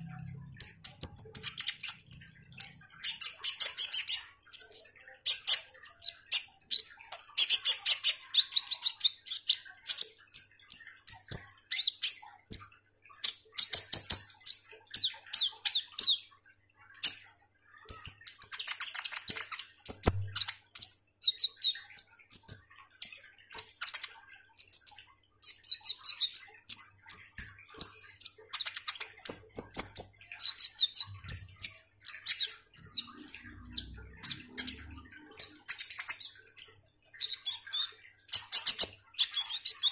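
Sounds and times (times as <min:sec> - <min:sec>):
bird chirping and trilling: 0:00.0 - 0:39.9.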